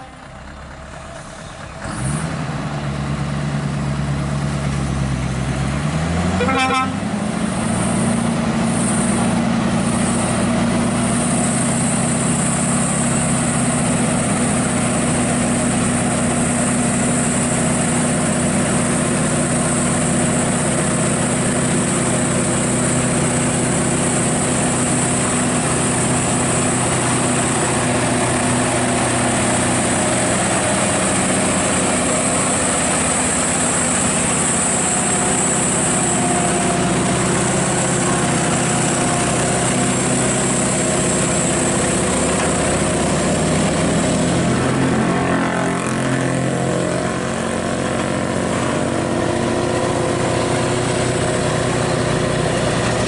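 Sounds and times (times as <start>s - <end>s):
truck horn toot: 0.0s - 0.3s, 6.3s - 7.1s
truck diesel engine: 0.0s - 53.0s.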